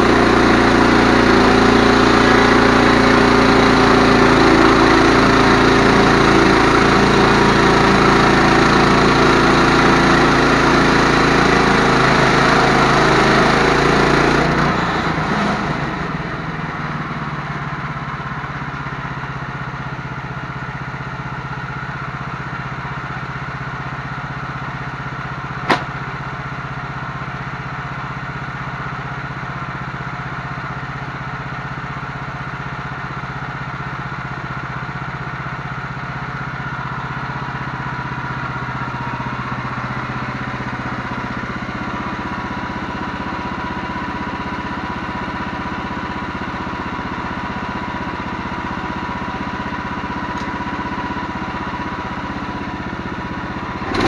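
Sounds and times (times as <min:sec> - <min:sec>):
sawmill engine running: 0:00.0 - 0:54.0
sharp knock: 0:25.7 - 0:26.0.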